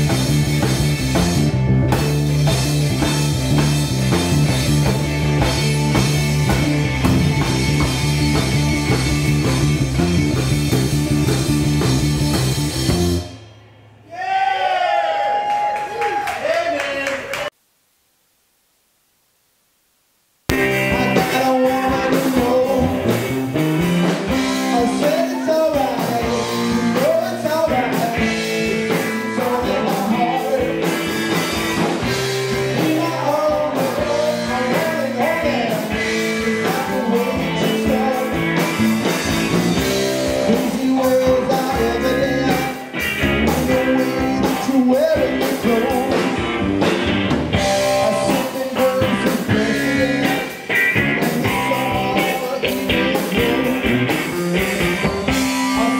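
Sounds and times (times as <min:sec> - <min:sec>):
live rock band playing: 0:00.0 - 0:14.0, 0:20.5 - 0:55.9
person singing: 0:20.6 - 0:23.4, 0:24.3 - 0:31.3, 0:32.4 - 0:39.1, 0:40.0 - 0:46.6, 0:47.7 - 0:55.9.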